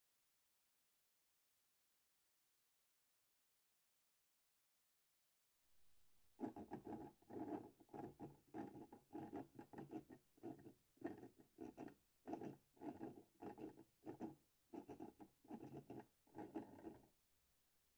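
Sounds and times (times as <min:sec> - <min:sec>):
plastic scraping and rattling: 0:06.4 - 0:17.1.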